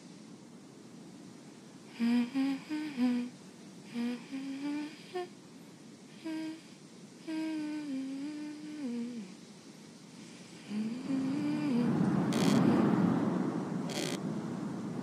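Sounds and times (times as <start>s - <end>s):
person humming a slow tune: 1.9s - 5.3s, 6.1s - 9.4s, 10.5s - 13.0s.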